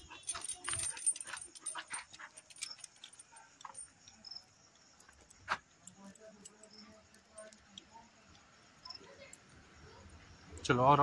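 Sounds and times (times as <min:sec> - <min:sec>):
chain leash clinking: 0:00.0 - 0:07.6.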